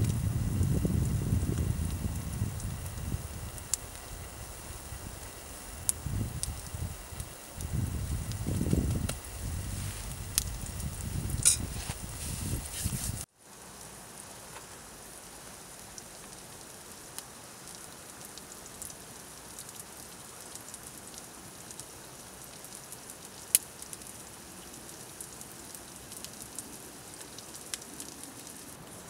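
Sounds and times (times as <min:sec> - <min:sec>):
eggs sizzling in a pan: 0:00.0 - 0:13.3.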